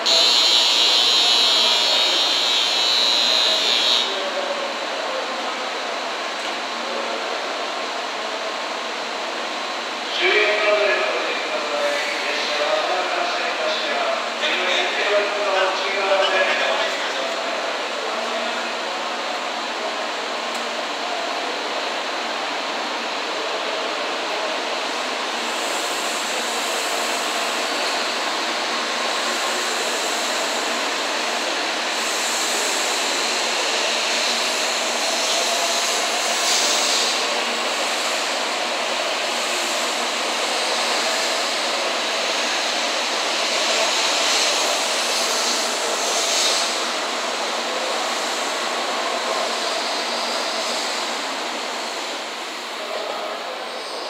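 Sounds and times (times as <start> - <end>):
train wheels and air rushing: 24.3 - 54.0.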